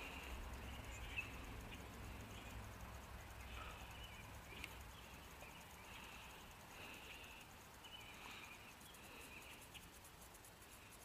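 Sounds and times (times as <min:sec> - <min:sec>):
faint rapid ticking: 0:00.0 - 0:11.0.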